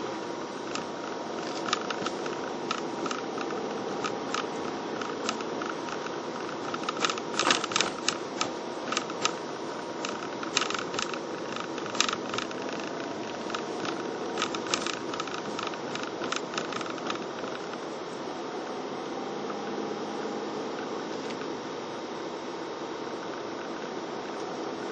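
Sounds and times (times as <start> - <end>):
car road and engine hum: 0.0 - 24.9
rattling clicks: 0.6 - 17.8.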